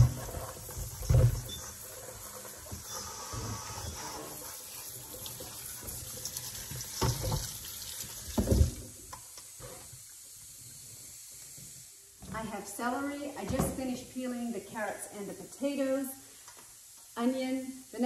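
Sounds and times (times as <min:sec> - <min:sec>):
faucet water running into sink: 0:00.0 - 0:09.2.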